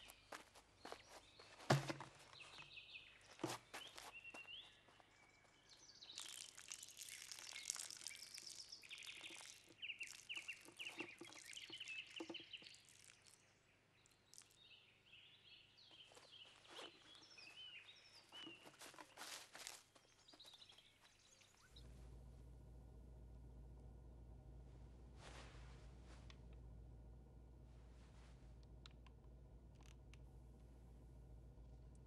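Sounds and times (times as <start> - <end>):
small birds chirping and trilling: 0.0 - 21.9.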